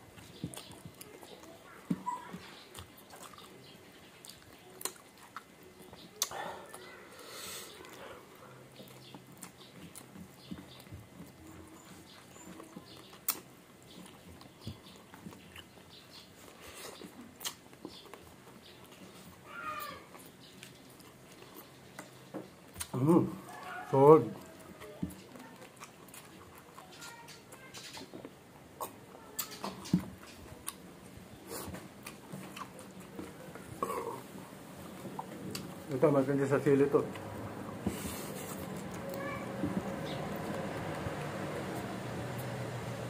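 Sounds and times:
chewing and lip smacks: 0.1 - 7.0, 7.7 - 42.6
wet lip smacks: 6.2 - 6.4, 16.8 - 17.7.

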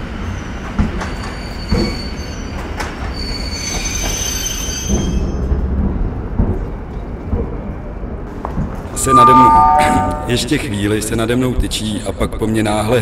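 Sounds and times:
train wheels squealing: 0.1 - 5.5.

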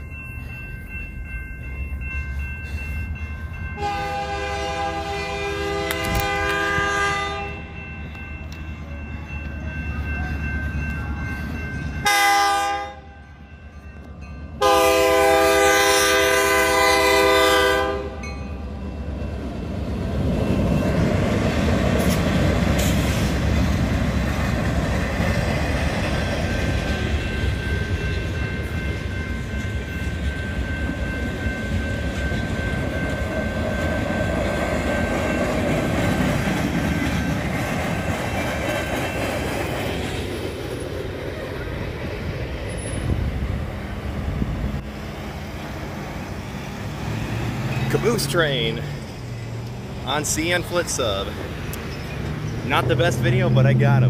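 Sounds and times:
train rumbling over rails: 0.0 - 54.0
locomotive horn blasts: 3.8 - 7.6, 12.0 - 13.1, 14.6 - 18.2
wheels clickety-clack: 20.2 - 43.1.

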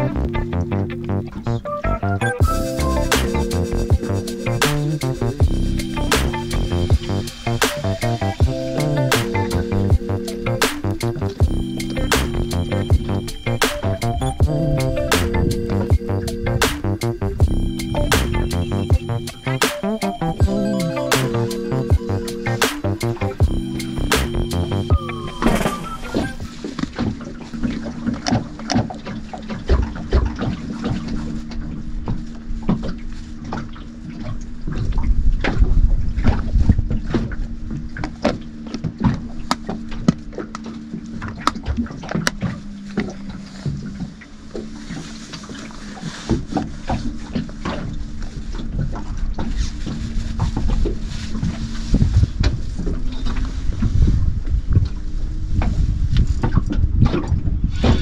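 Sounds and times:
low hum: 0.0 - 28.5
wind on microphone: 2.4 - 19.6, 32.6 - 38.1, 44.9 - 58.0
water lapping against boat: 25.6 - 58.0.

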